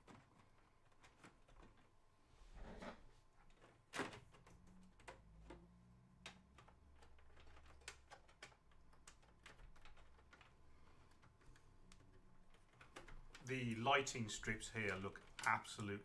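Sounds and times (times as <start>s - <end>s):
clicks and taps of handling cables: 3.4s - 13.6s, 14.6s - 16.0s.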